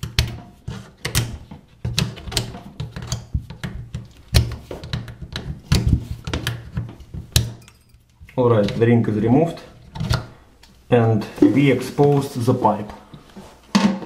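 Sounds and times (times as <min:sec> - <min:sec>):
screwdriver metal clicks and scrapes: 0:07.4 - 0:08.1.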